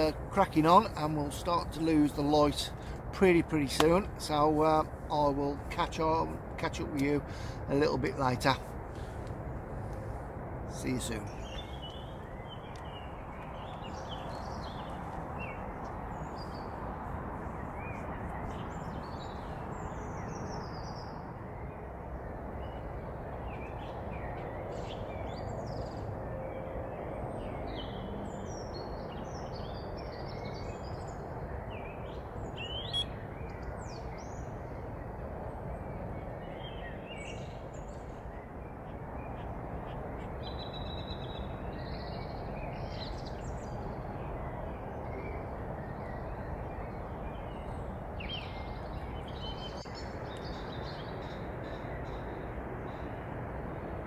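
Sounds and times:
birds chirping: 0.0s - 10.1s, 10.7s - 53.8s
low outdoor rush: 0.0s - 54.0s.

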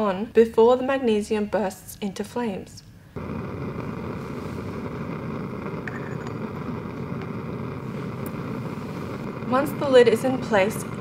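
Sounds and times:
bunsen burner flame rushing: 3.1s - 11.0s.

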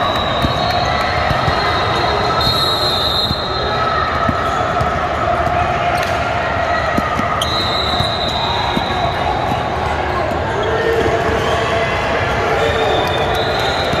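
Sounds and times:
basketballs bouncing: 0.0s - 10.0s.

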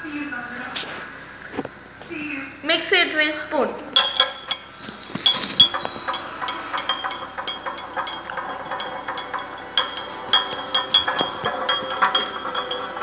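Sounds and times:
metal spoon clinking in glass: 4.0s - 13.0s.

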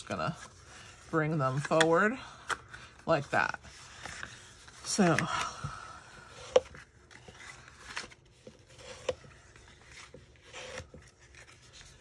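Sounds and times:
bone folder scraping cardstock: 6.2s - 12.0s.

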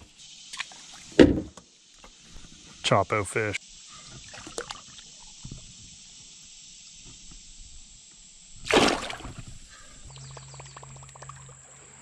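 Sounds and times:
steady high hiss: 0.0s - 12.0s
faint water drips: 3.8s - 6.2s, 8.2s - 12.0s
fish splashing in water: 8.6s - 11.6s.

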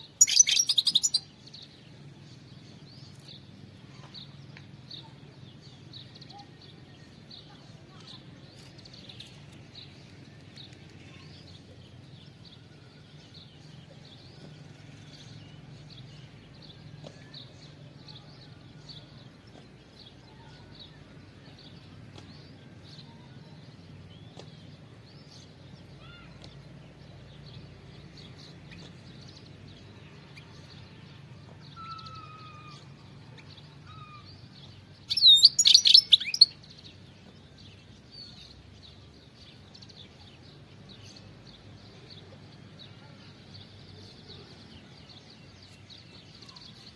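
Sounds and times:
bird chirping: 0.0s - 3.5s, 24.1s - 46.9s
bird rapid calls: 0.2s - 1.2s.

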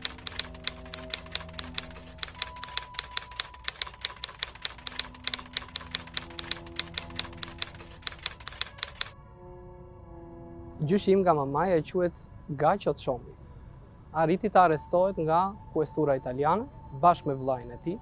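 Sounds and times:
typewriter keys clacking: 0.0s - 9.1s
soft sustained music chords: 0.0s - 18.0s.

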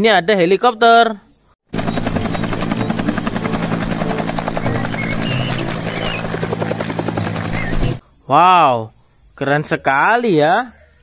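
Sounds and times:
helicopter engine hum: 1.7s - 8.0s
helicopter rotor chopping: 1.7s - 8.0s.

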